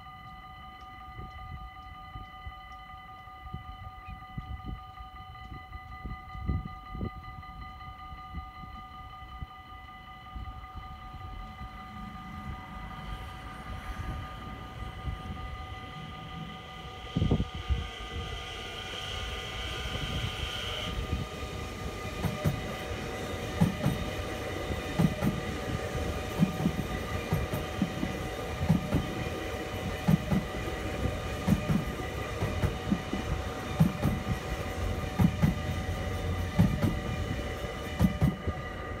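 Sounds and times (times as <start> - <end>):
electric train whine: 0.0 - 39.0
train wheels thumping on track: 18.4 - 38.7.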